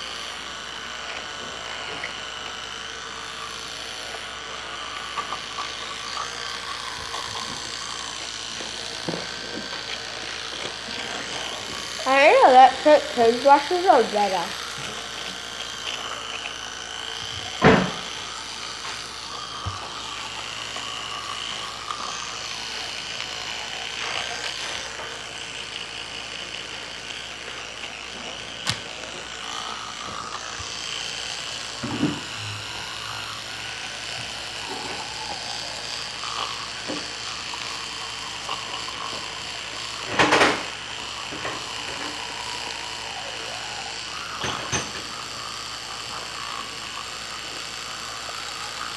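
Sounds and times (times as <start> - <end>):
electric toothbrush buzzing: 0.0 - 48.9.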